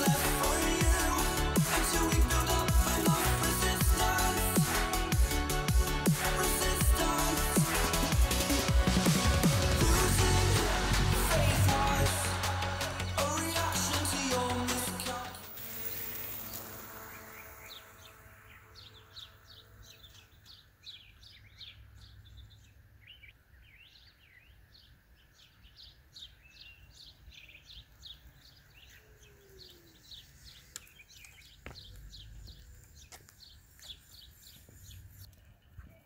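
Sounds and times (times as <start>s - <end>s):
songbirds chirping: 0.0s - 36.0s.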